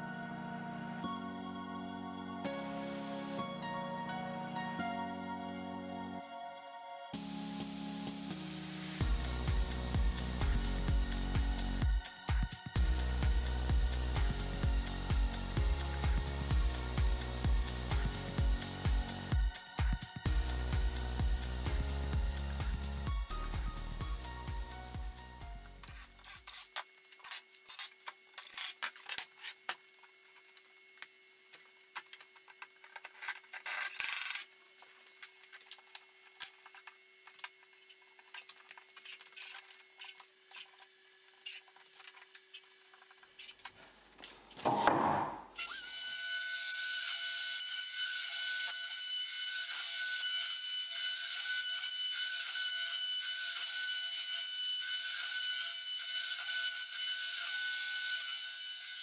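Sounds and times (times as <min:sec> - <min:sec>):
router whining cutting wood: 0:45.6 - 0:59.0.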